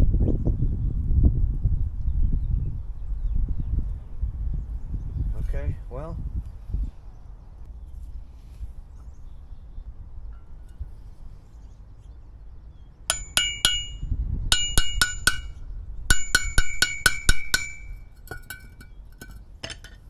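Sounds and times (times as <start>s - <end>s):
hammer striking metal: 13.1s - 18.9s.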